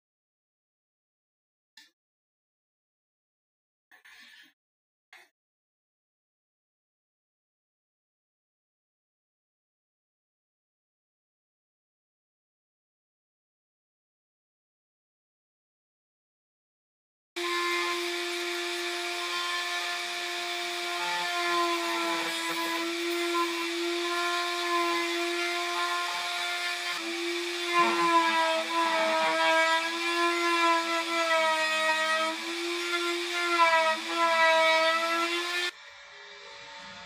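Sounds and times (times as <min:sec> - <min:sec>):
electric router whining: 0:17.4 - 0:37.0.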